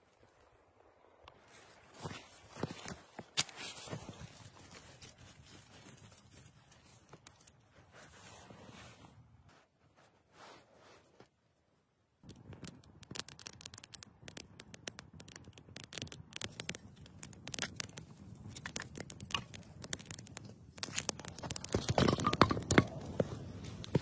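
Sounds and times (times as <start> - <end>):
campfire crackling: 12.2 - 24.0
sticks knocking and rustling: 12.3 - 24.0.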